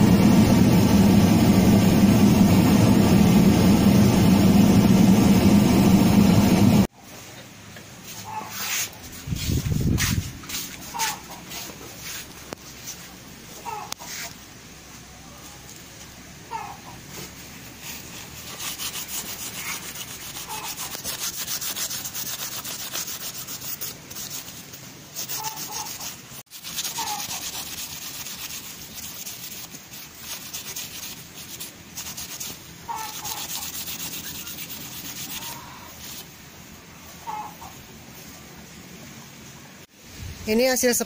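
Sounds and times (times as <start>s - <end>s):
cloth rubbing knife blade: 25.2s - 36.3s.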